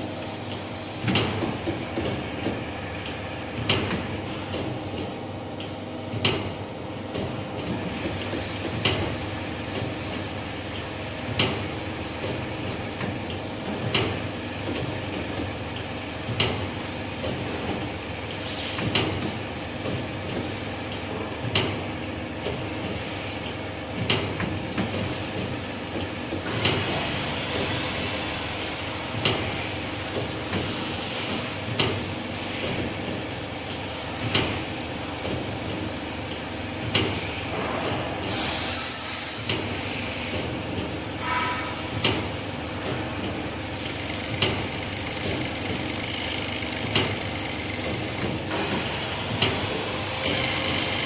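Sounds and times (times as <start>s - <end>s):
machine motor hum: 41.9s - 51.0s.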